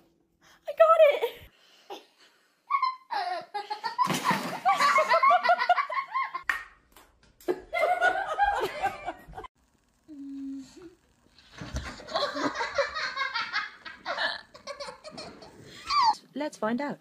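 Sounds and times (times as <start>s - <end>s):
people laughing hard: 4.6s - 6.4s, 7.5s - 9.5s, 11.8s - 16.1s.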